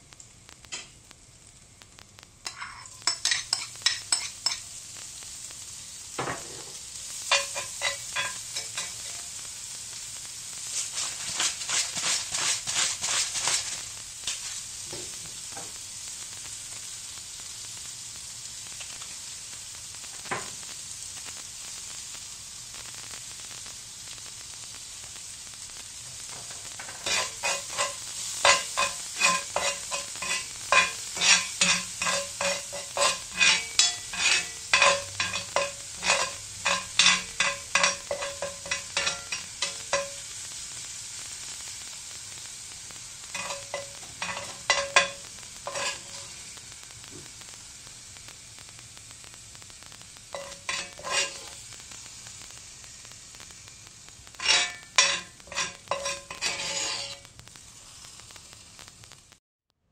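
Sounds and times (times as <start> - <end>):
onions sizzling in a pan: 0.0 - 59.9
metal spoon scraping a pan: 2.4 - 4.7, 6.2 - 9.3, 10.7 - 14.6, 26.2 - 40.4, 43.2 - 46.4, 50.3 - 51.7, 54.4 - 57.3.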